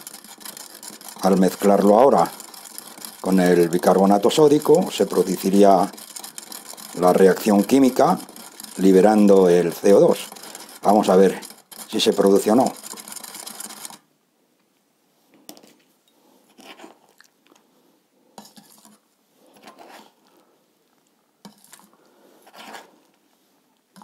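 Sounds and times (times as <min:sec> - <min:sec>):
spoon scraping and clinking in glass: 0:00.0 - 0:14.0, 0:18.4 - 0:19.0, 0:21.4 - 0:21.9.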